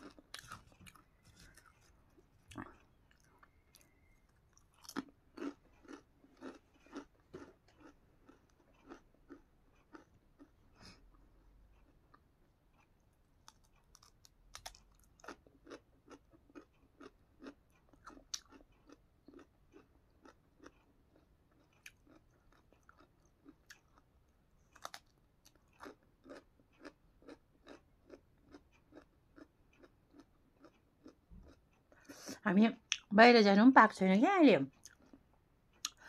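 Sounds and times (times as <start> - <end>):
crisp crunching of carrot: 0.0 - 10.5.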